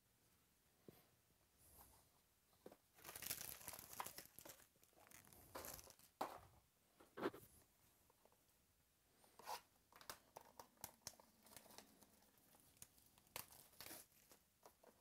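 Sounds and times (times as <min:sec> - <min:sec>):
plastic wrap tearing and crinkling: 0:03.0 - 0:06.1, 0:10.0 - 0:14.4.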